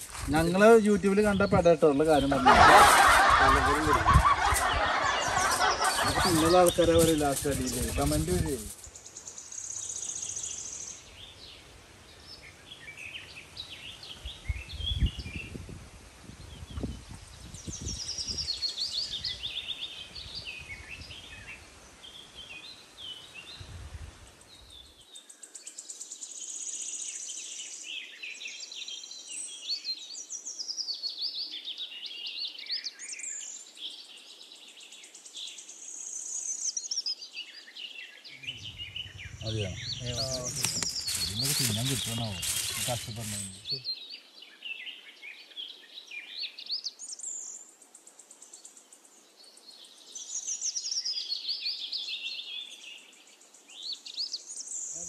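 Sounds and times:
birds chirping and trilling: 0:00.0 - 0:11.6, 0:37.7 - 0:45.3
low rumbling: 0:38.4 - 0:40.7.

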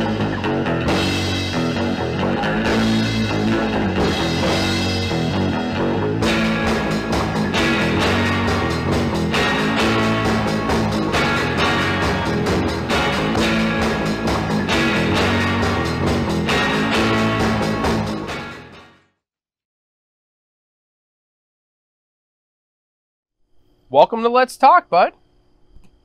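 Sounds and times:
rock music with electric guitar: 0:00.0 - 0:19.2.

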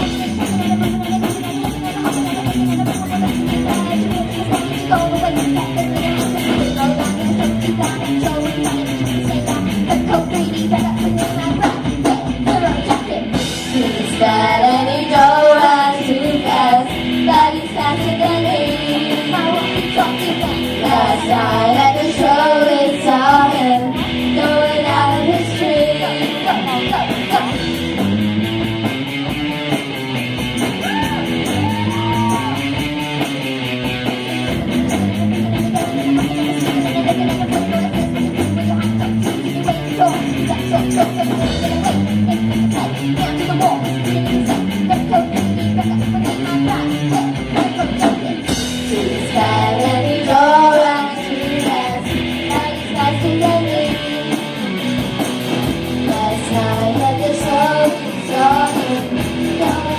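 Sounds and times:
live rock band playing: 0:00.0 - 0:59.9
girls singing together: 0:10.1 - 0:27.5, 0:43.2 - 0:54.5, 0:56.1 - 0:59.9.

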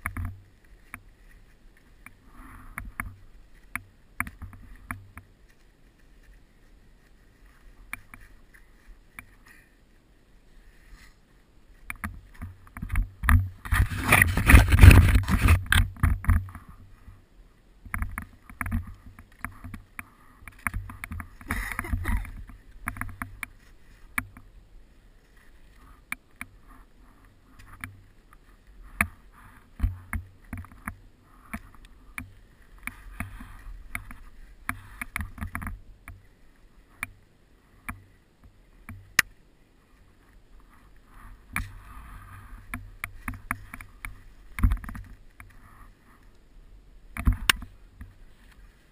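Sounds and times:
skis and poles clattering: 0:10.7 - 0:16.9, 0:17.9 - 0:24.5
powder snow crunching and scraping: 0:13.4 - 0:16.0.

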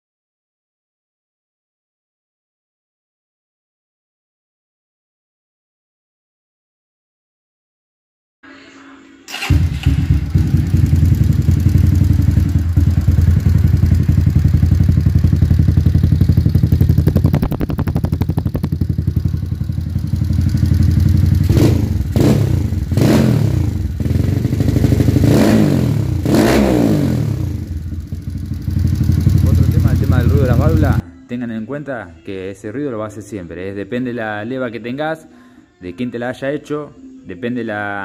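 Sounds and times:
engine throttle blips: 0:09.3 - 0:31.0
motorcycle engine idling: 0:09.4 - 0:31.0.

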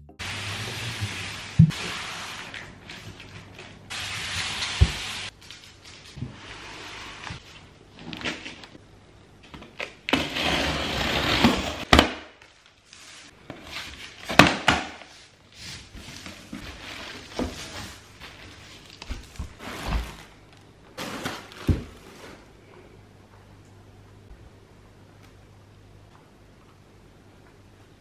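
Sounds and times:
plastic wrapping rustling: 0:00.3 - 0:08.8, 0:11.3 - 0:22.6.

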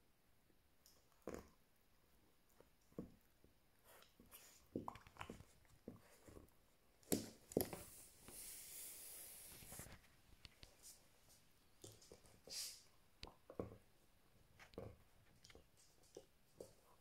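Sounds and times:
puppy gnawing rubber chew toy: 0:02.5 - 0:07.9
soft hiss: 0:07.7 - 0:13.3.

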